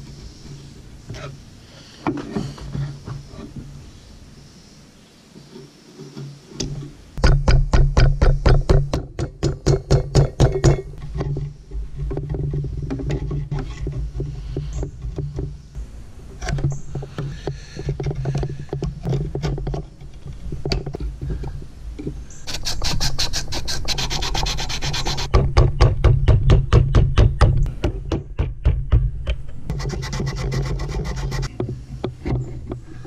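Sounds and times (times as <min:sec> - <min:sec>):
fast rasping strokes: 0:22.4 - 0:25.3, 0:29.7 - 0:31.5
chisel scraping wood: 0:22.5 - 0:25.3, 0:29.7 - 0:33.0.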